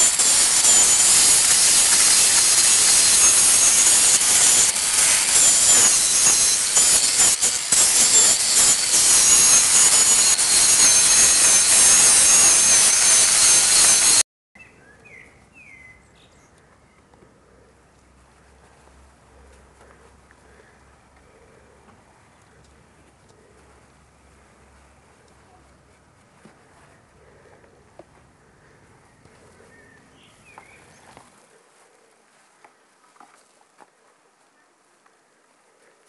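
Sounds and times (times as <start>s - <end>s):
angle grinder sanding wood: 0.0s - 14.2s.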